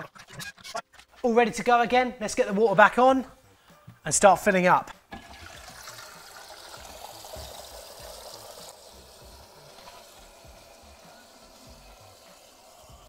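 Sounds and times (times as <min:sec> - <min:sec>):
water hissing into toilet cistern: 0:05.1 - 0:13.0.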